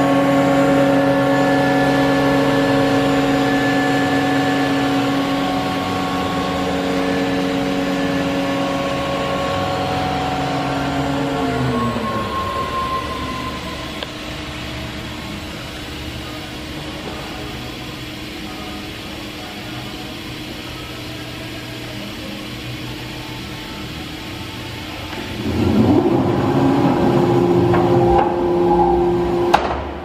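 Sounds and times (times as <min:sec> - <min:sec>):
cnc router motor whine: 0:00.0 - 0:17.0, 0:24.4 - 0:29.9
mechanical hum with hiss: 0:00.0 - 0:30.0.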